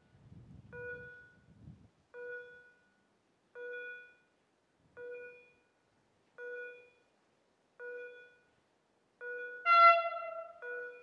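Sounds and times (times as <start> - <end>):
level crossing warning bell: 0.7 - 4.4, 5.0 - 5.8, 6.4 - 7.2, 7.8 - 8.6, 9.2 - 11.0.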